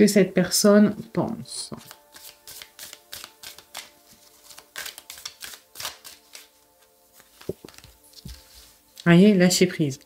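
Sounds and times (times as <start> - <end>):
faint background music: 0.0 - 10.0
deck of cards being shuffled: 1.6 - 9.4.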